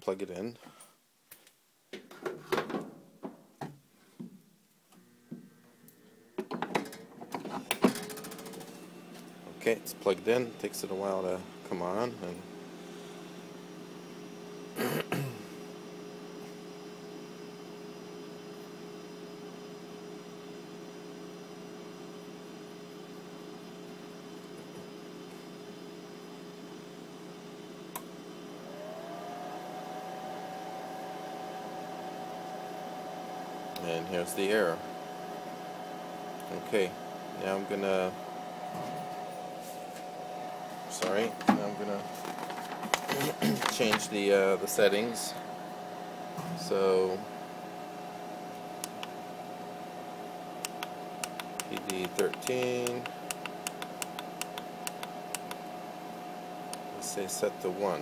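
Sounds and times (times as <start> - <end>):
mains hum: 0.0 - 58.0
motor drive whine: 4.9 - 58.0
sharp click: 50.6 - 55.6.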